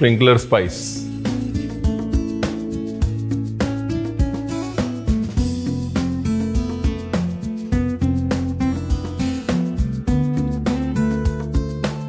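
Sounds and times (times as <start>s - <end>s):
background music with guitar and drums: 0.0s - 12.0s.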